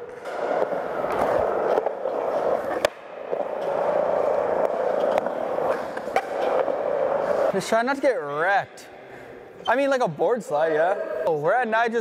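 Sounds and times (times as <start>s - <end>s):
skateboard wheels rolling on concrete: 0.0s - 7.7s.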